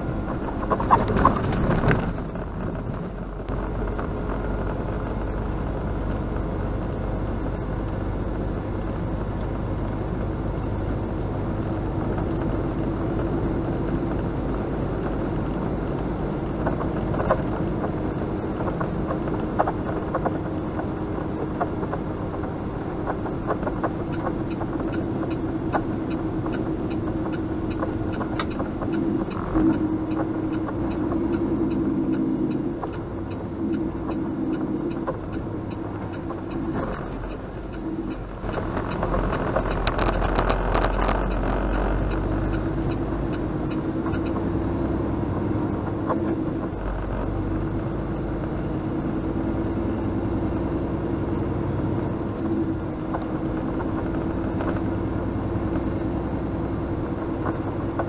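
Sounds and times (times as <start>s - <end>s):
road noise: 0.0s - 58.0s
cab rattles: 0.2s - 3.6s
truck jolting over tracks: 0.7s - 2.4s
light ticking: 2.9s - 48.7s
truck diesel engine running: 13.1s - 58.0s.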